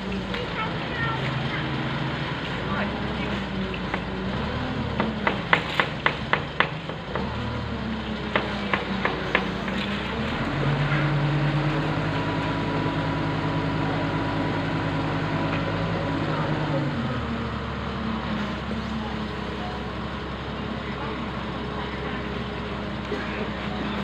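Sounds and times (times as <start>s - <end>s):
crane engine running: 0.0s - 24.0s.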